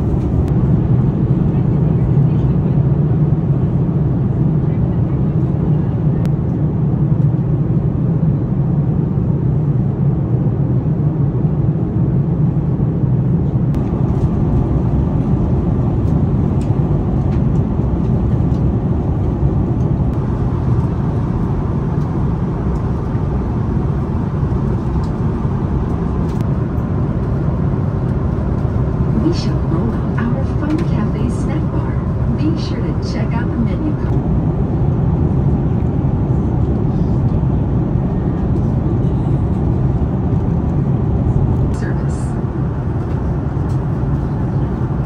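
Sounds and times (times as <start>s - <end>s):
airplane cabin rumble: 0.0s - 45.0s.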